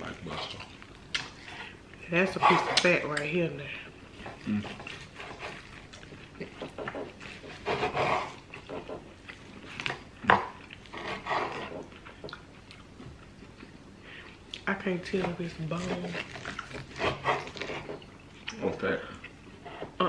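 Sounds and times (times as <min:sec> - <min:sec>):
chewing and wet mouth noises: 0:00.1 - 0:02.0, 0:04.2 - 0:07.6, 0:08.3 - 0:11.0, 0:11.8 - 0:14.7, 0:16.1 - 0:20.0.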